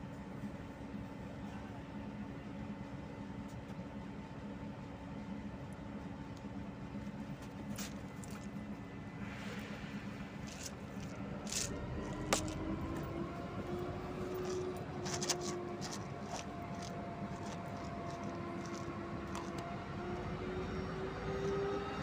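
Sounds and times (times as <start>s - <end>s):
diesel locomotive engine rumble: 0.0s - 22.0s.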